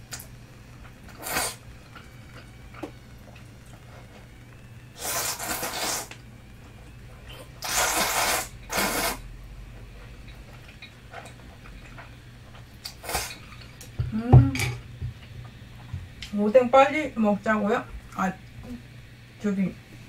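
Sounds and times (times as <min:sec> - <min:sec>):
low steady hum: 0:00.0 - 0:20.0
person eating noodles: 0:05.0 - 0:06.1, 0:07.3 - 0:09.2.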